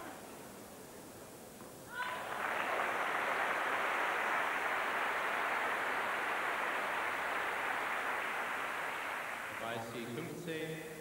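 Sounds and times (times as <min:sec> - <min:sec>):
crowd applauding: 0:02.0 - 0:10.1.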